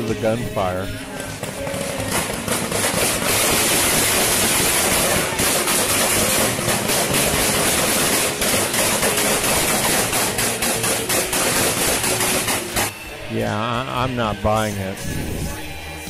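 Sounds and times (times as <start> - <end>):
gunfire cracks: 2.1 - 12.9.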